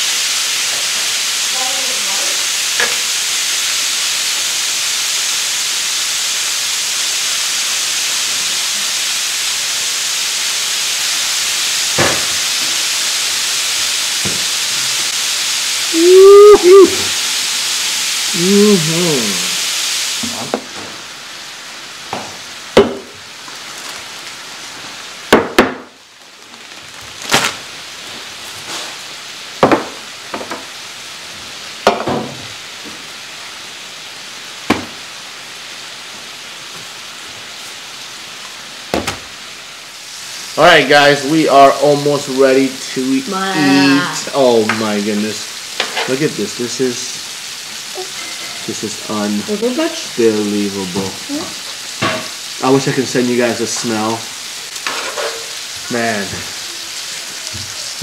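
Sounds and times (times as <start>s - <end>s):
meat sizzling on a griddle: 0.0s - 58.0s
man's wordless voice: 18.4s - 19.6s.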